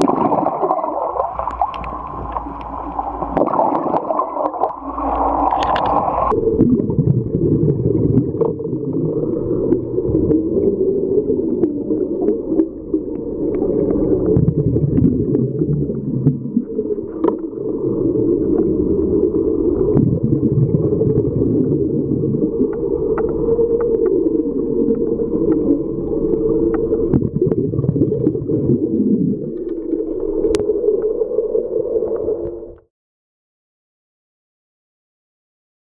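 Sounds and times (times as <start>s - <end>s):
muffled underwater rumble: 0.0s - 32.9s.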